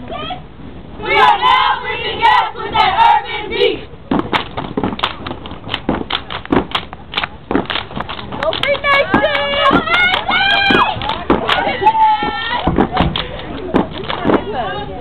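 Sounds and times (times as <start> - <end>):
stomps and claps: 4.1 - 14.5.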